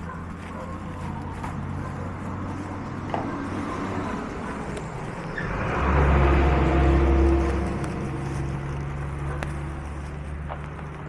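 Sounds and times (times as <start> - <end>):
bubble wrap rustling: 0.0 - 11.0
vehicle engine humming: 0.0 - 11.0.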